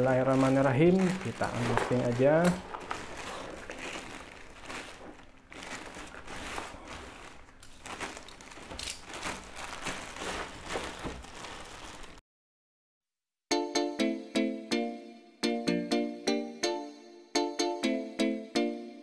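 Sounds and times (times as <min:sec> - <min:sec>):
plastic mailer bag crinkling: 0:00.0 - 0:12.2.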